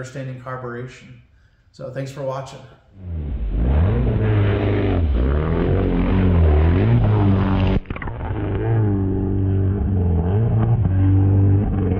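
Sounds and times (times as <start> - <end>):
jet ski engine running: 3.0 - 11.9.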